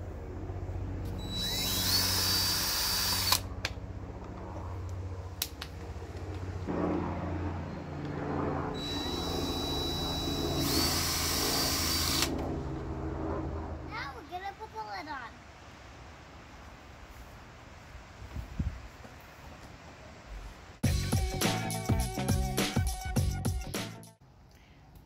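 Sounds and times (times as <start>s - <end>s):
cordless drill whirring: 1.1s - 3.4s, 8.8s - 12.4s.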